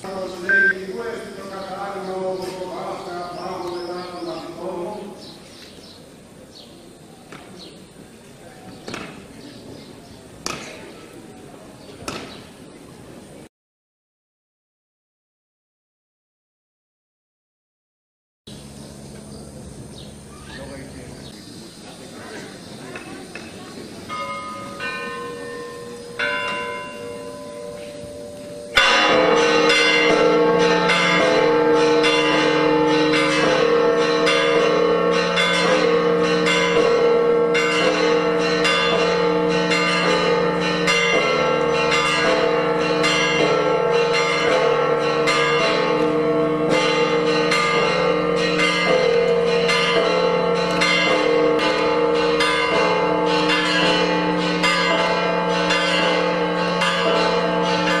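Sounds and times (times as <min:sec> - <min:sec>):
church bells ringing: 0:00.0 - 0:05.4, 0:22.9 - 0:58.0.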